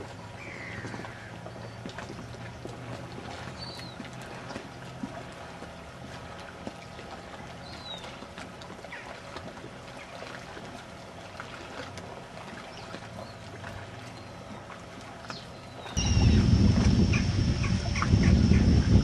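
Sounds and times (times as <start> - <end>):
water lapping: 0.0 - 19.0
steady low hum: 10.8 - 19.0.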